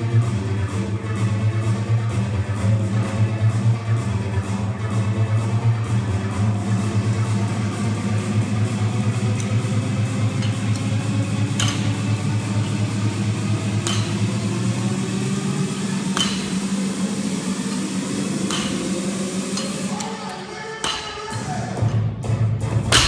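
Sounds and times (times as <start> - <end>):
steady low hum: 0.0 - 21.8.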